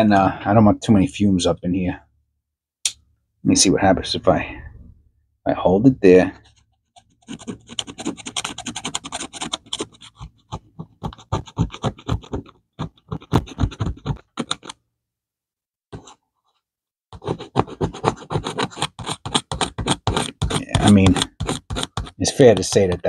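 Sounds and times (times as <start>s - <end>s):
metal tool scraping a coin: 17.3s - 23.0s.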